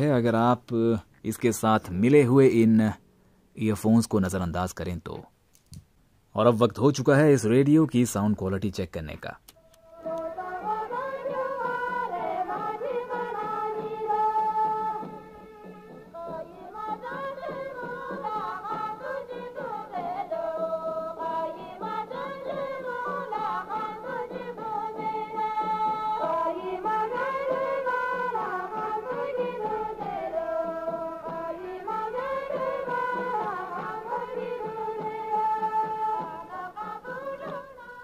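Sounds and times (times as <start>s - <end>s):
song on small radio speaker: 9.5s - 38.0s.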